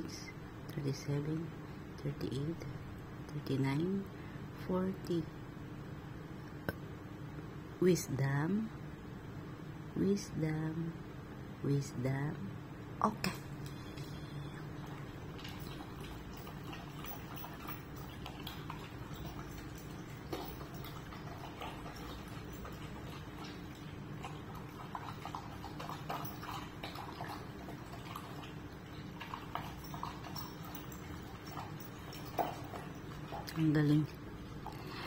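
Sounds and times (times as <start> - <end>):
steady low hum: 0.0 - 35.0
dog chewing and lapping: 13.3 - 35.0.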